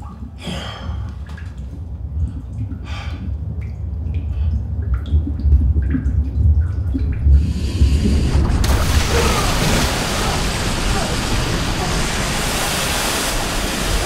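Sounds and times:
water dripping: 0.0s - 14.0s
deep low rumble: 1.7s - 14.0s
hiss: 7.4s - 14.0s.

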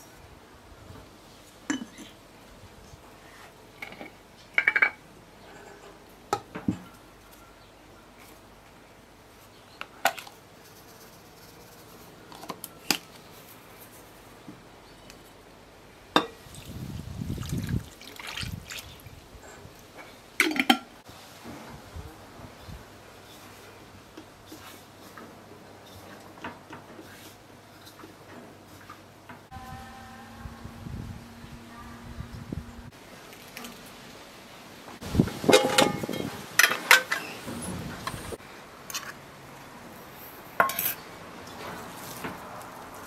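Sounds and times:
liquid pouring: 17.3s - 19.0s.

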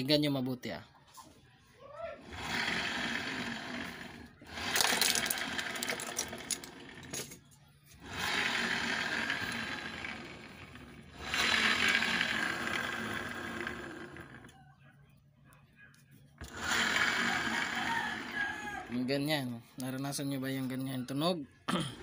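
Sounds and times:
scooter engine revving: 2.2s - 7.3s, 8.0s - 14.6s, 16.4s - 19.1s.

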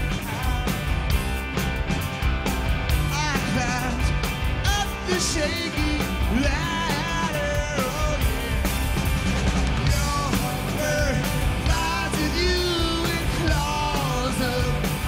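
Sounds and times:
man singing lead vocal: 0.0s - 1.0s, 3.1s - 8.7s, 9.8s - 15.0s
live rock band playing: 0.0s - 15.0s.

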